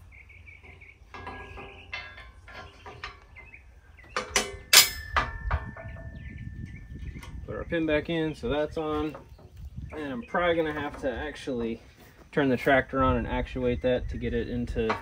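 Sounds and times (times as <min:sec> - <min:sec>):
metal pin clinking and knocking: 0:04.1 - 0:06.1.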